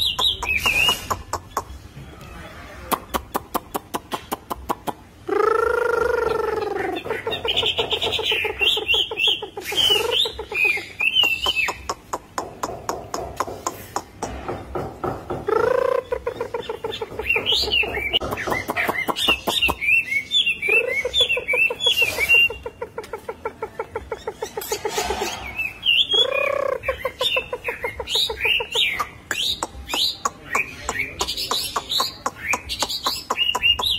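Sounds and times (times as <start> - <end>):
bird singing whistled trills: 7.4 - 11.8, 24.5 - 31.5.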